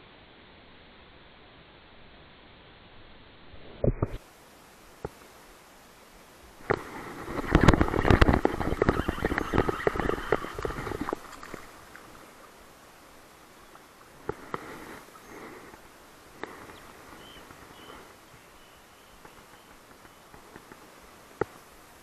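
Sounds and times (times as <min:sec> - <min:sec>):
faint high chirps: 0:16.6 - 0:20.8.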